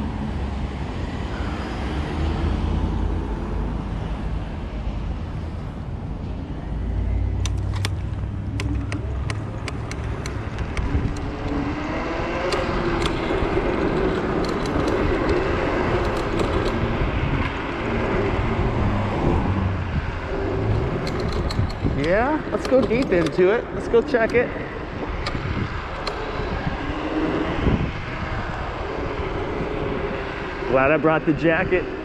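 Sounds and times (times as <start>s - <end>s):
vehicle traffic: 0.0s - 32.0s
wind and road rumble: 0.0s - 32.0s
sharp clicks or rattles: 7.4s - 19.2s, 20.4s - 24.6s, 25.2s - 26.6s.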